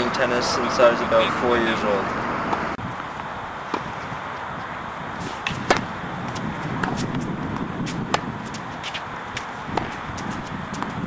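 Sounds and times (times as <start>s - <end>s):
tennis ball struck by rackets: 2.4s - 2.8s, 3.6s - 4.0s, 5.2s - 11.0s.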